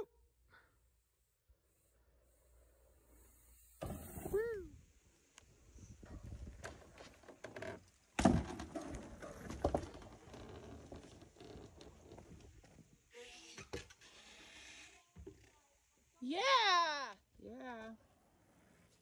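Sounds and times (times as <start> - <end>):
bike rattling over wood: 6.1 - 12.9.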